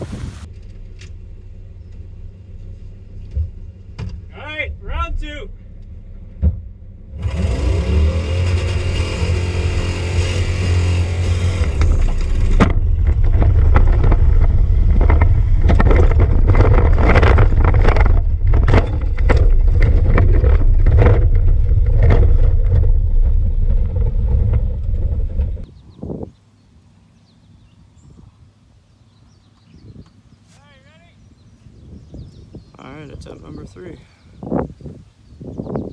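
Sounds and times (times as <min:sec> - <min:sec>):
knocks and rattles of truck: 0:00.5 - 0:04.3, 0:05.8 - 0:25.7
truck engine revving: 0:07.0 - 0:25.7.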